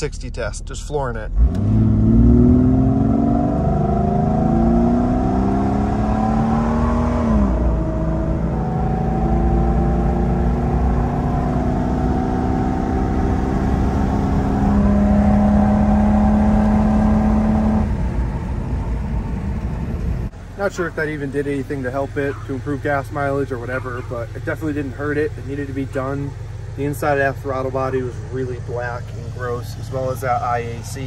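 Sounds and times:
car engine at full throttle: 0.0 - 31.0.

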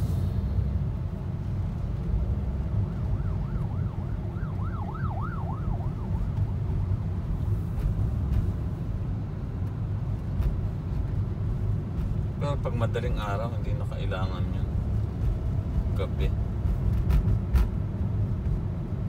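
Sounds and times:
car engine rumble: 0.0 - 19.0
road noise: 0.0 - 19.0
ambulance siren yelping: 2.8 - 6.9.

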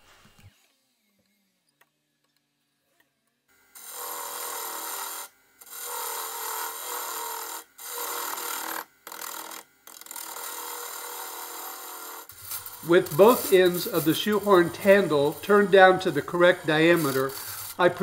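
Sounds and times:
lathe tool scraping wood: 3.8 - 18.0.

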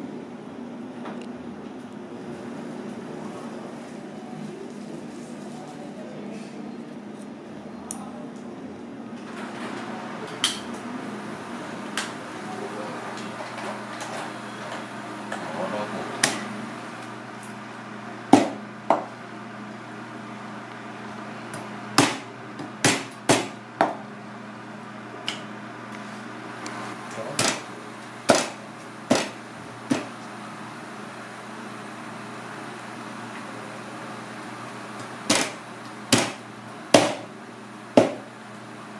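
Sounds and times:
background hum and hiss: 0.0 - 38.9
knife chopping on plastic board: 28.3 - 30.1, 35.3 - 36.4, 37.0 - 37.2.

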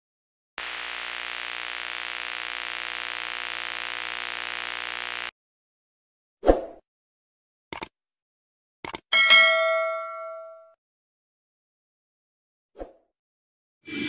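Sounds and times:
static-like hiss: 0.6 - 5.3.

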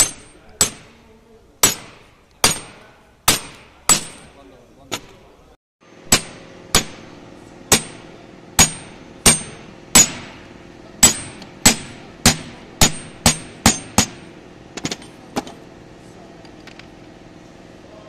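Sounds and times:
hammer striking steel pipe: 0.0 - 4.4, 6.0 - 10.4, 11.0 - 15.1.

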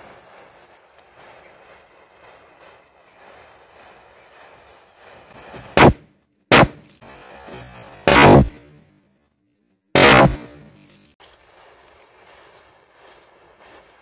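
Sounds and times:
matchsticks fizzing and crackling: 0.0 - 8.1, 10.7 - 14.0
firecracker bangs: 5.4 - 8.8, 9.9 - 11.0.

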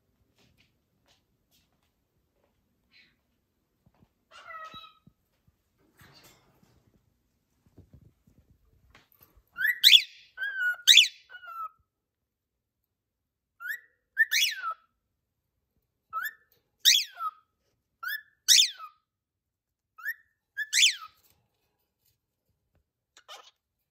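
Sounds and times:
cockatiel whistling: 9.6 - 11.8, 13.6 - 14.9, 16.1 - 17.4, 20.0 - 21.1.

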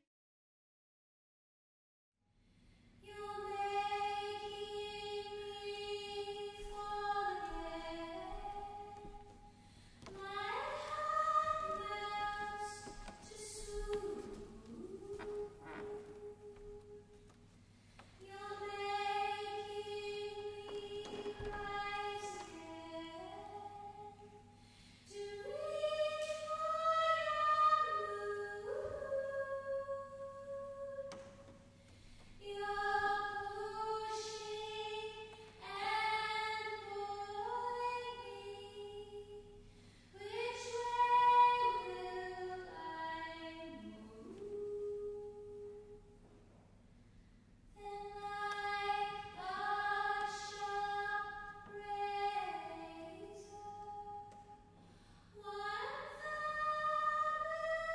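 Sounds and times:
singers breathing: 9.5 - 10.0, 24.5 - 25.1, 31.8 - 32.4, 54.8 - 55.4.

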